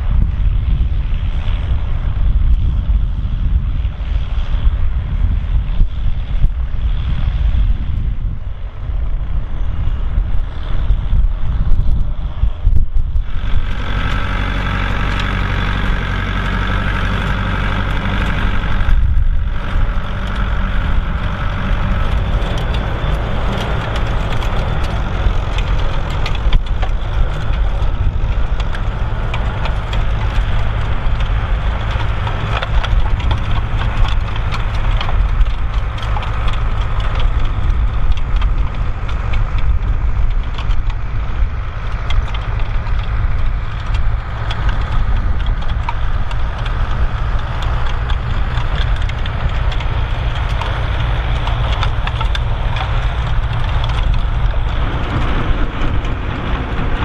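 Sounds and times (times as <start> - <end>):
tractor engine running: 0.0 - 57.0
manure spreader clattering: 13.3 - 57.0.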